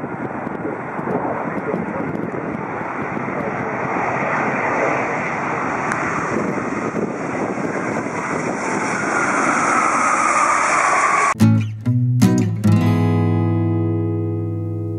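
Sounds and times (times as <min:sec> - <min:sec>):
jet engine noise: 0:00.0 - 0:11.4
jet engine whine: 0:00.0 - 0:11.4.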